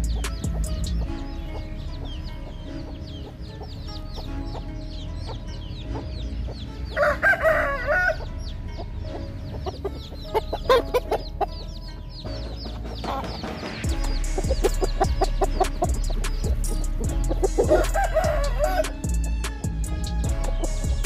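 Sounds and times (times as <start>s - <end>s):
chickens clucking: 0.0s - 21.0s
high chirping: 0.0s - 21.0s
rooster crowing: 7.0s - 8.3s, 16.8s - 19.1s.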